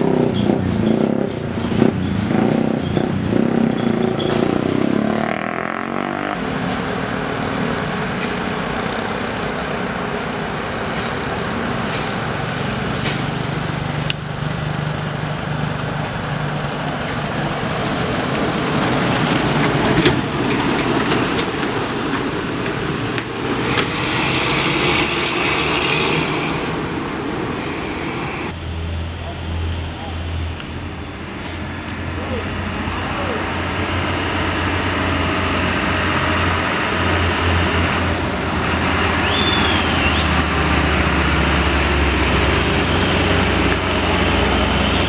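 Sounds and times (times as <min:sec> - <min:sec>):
diesel truck engine under load: 0:00.0 - 0:28.6, 0:30.4 - 0:45.0
truck air hissing: 0:22.5 - 0:28.5.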